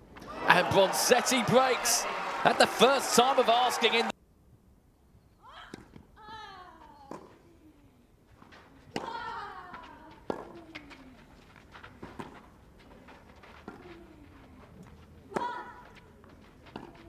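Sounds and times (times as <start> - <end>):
players grunting: 0.3 - 4.1.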